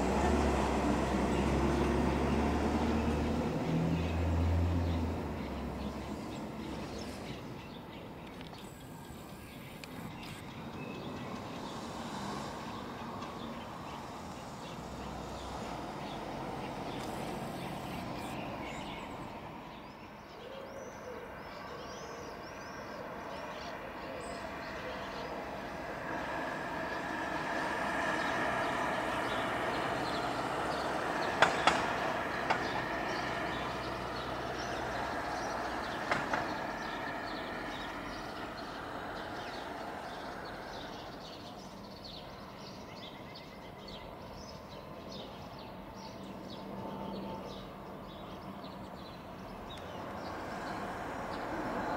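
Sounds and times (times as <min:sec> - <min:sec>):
birds chirping: 0:00.0 - 0:51.9
sharp clicks: 0:08.2 - 0:10.6, 0:31.4 - 0:32.7
jet airliner passing overhead: 0:24.4 - 0:41.7.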